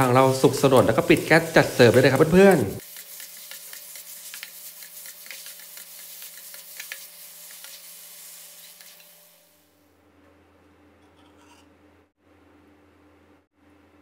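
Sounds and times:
spatula scraping a pan: 0.0 - 9.2, 11.0 - 11.7
stir-fry sizzling in a wok: 0.0 - 9.9.

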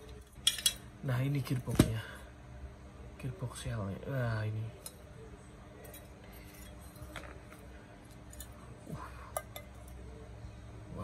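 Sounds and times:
metal parts clicking in hands: 0.1 - 0.9, 5.8 - 8.6.

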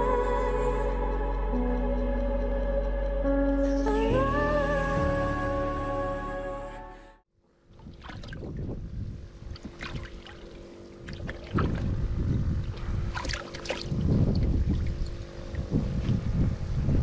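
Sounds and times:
wind buffeting microphone: 7.7 - 10.2, 11.0 - 17.0.

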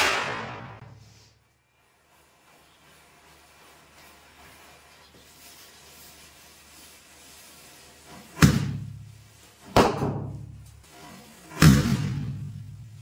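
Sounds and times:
firecracker bangs with echo: 0.0 - 0.8.

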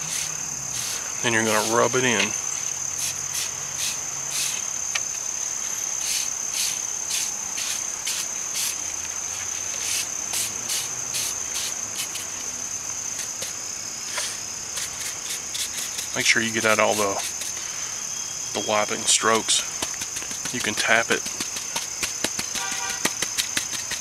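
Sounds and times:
short scratchy strokes: 0.0 - 1.9, 13.2 - 17.6
insects trilling: 0.0 - 24.0.

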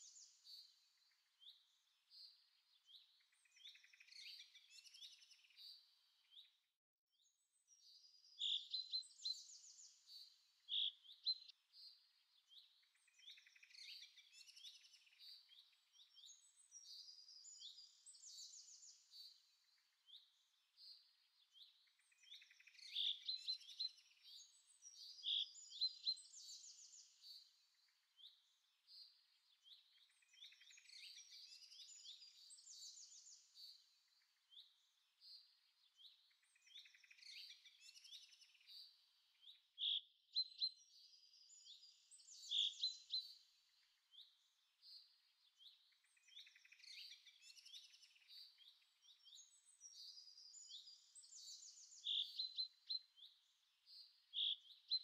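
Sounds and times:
songbirds chirping and trilling: 0.0 - 55.0.

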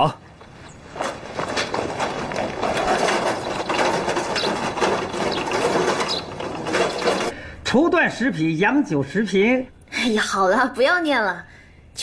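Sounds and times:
rickshaw rattling over paving stones: 0.4 - 7.4.

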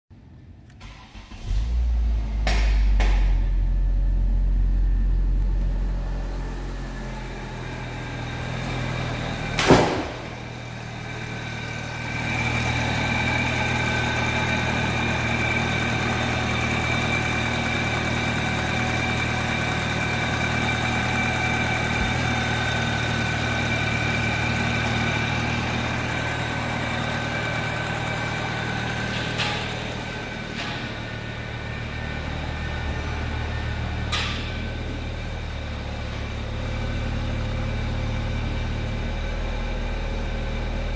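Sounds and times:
car engine starting and idling: 0.2 - 40.9
loud thump: 9.6 - 10.5.

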